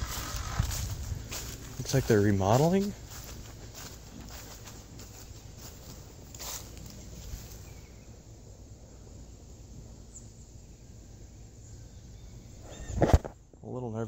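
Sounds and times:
outdoor background noise: 0.0 - 14.0
faint high chirp: 11.6 - 13.0.

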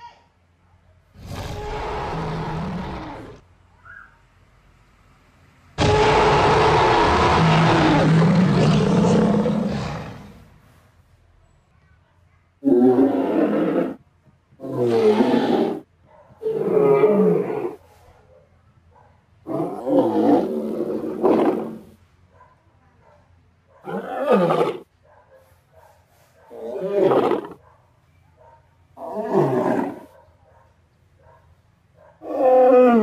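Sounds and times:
dinosaur roar: 1.2 - 3.4, 5.8 - 10.5, 12.6 - 14.0, 14.6 - 15.8, 19.5 - 21.9, 29.0 - 30.1, 32.2 - 33.0.

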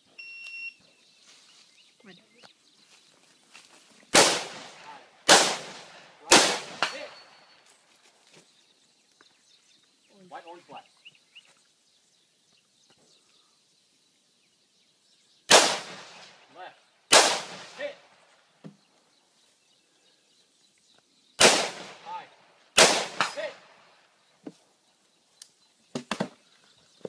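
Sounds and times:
rifle shots with echo: 4.1 - 7.2, 15.5 - 16.5, 17.1 - 18.2, 21.4 - 23.9.

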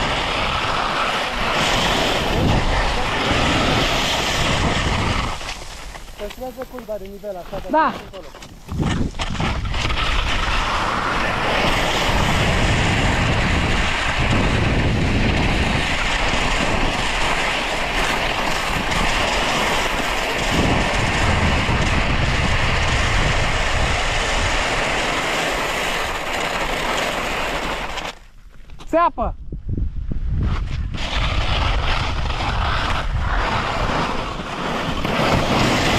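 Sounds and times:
skis scraping over snow: 0.0 - 29.1, 30.3 - 35.9.

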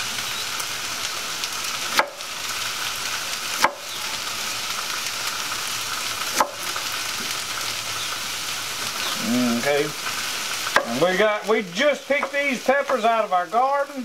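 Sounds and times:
fish sizzling on a griddle: 0.0 - 14.0
knife chopping on cutting board: 6.3 - 6.6.

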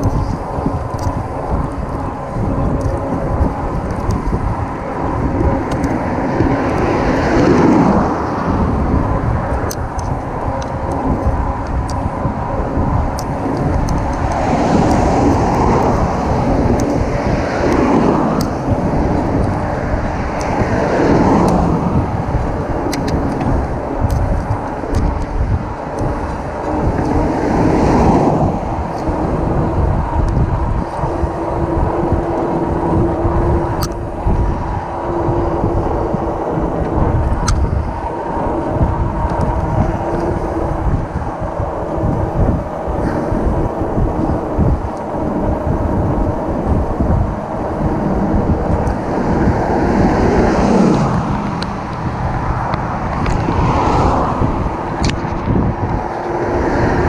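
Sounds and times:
cars passing: 0.0 - 57.0
low steady hum: 0.0 - 57.0
wind buffeting microphone: 0.0 - 57.0
sharp clicks: 22.8 - 25.3.

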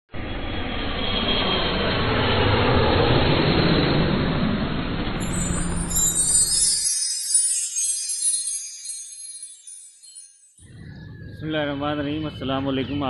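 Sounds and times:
high glittering chime shimmer: 5.0 - 10.7.

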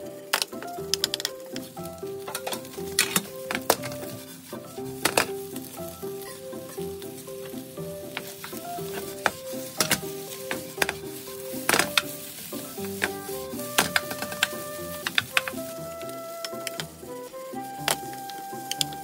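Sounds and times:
rice sizzling in a frying pan: 0.0 - 19.0
spatula knocking and scraping pan: 2.1 - 15.7.

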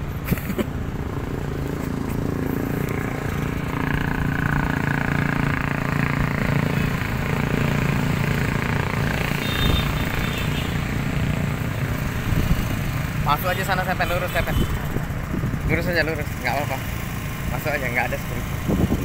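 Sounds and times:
small motorbike engine running: 0.3 - 19.0.

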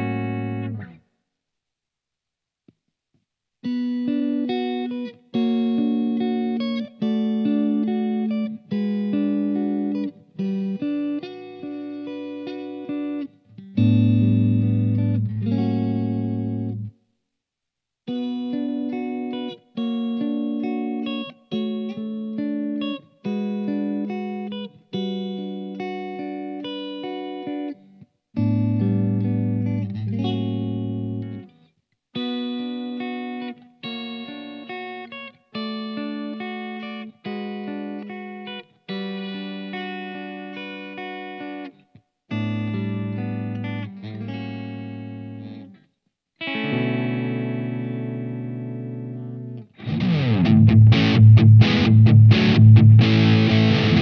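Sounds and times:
electric guitar chords through amp: 0.0 - 1.0, 3.8 - 16.9, 42.3 - 45.7, 46.4 - 54.0
electric guitar melody: 0.0 - 1.0, 3.6 - 17.0, 18.1 - 54.0.

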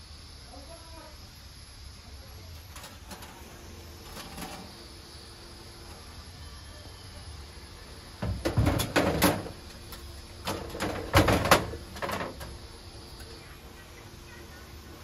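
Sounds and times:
hard objects knocking and clattering: 8.2 - 9.6, 10.4 - 12.5.

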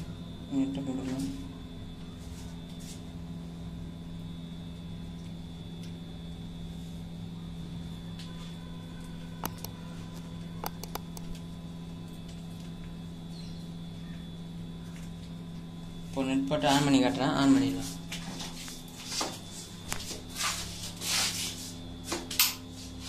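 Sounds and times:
steady low hum: 0.0 - 20.9
clicks and taps on pipe fitting: 9.4 - 9.7, 10.6 - 11.3.

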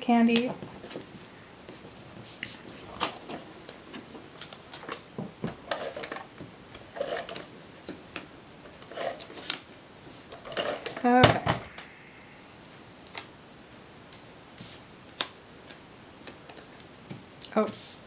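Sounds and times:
paper rustling: 8.9 - 11.1.

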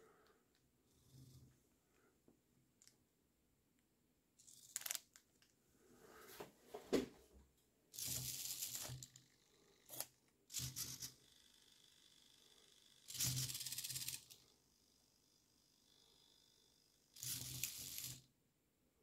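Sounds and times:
servo motors buzzing: 8.0 - 18.3.

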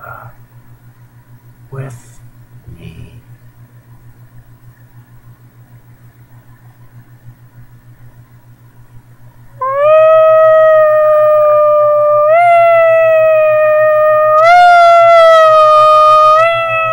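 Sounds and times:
faint steady hum: 0.0 - 16.9
man howling in falsetto: 9.6 - 16.9.

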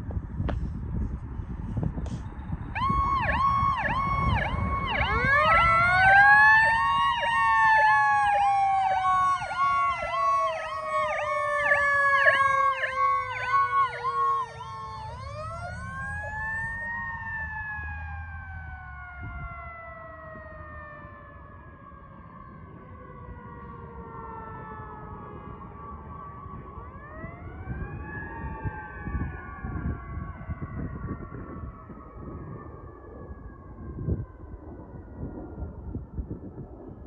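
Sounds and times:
fire engine rumble: 0.0 - 37.0
siren yelp: 2.0 - 37.0
wailing siren winding up: 2.7 - 20.4.

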